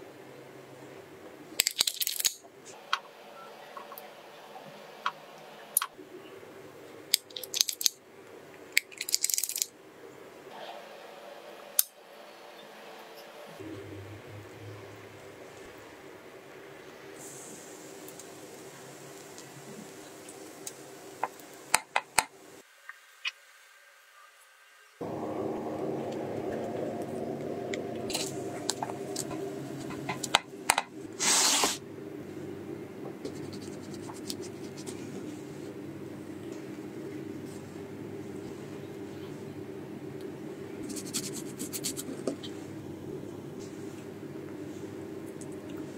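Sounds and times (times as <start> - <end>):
low background noise: 0.0 - 31.2
faint steady hum: 9.7 - 22.7, 24.9 - 31.2, 31.8 - 45.9.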